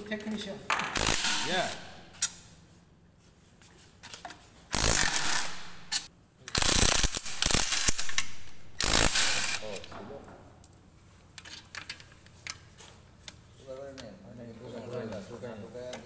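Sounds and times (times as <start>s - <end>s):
impact driver running: 4.7s - 6.0s, 6.6s - 9.8s.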